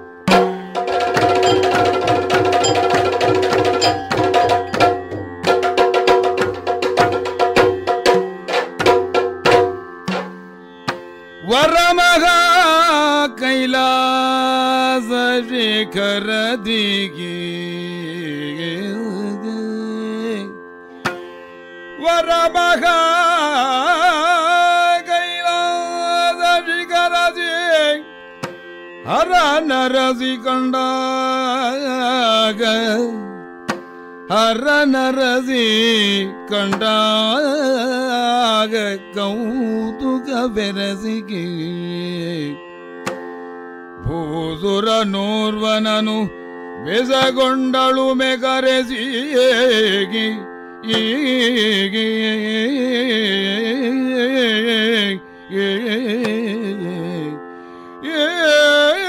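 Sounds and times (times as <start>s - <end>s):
quick drum strokes: 0.3s - 10.4s
person singing ornamented notes: 0.3s - 10.5s, 34.3s - 42.7s, 44.0s - 57.4s.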